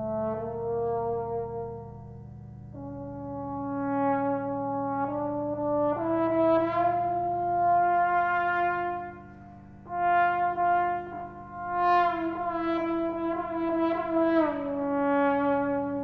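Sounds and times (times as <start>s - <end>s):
trombone sustained notes: 0.0s - 16.0s.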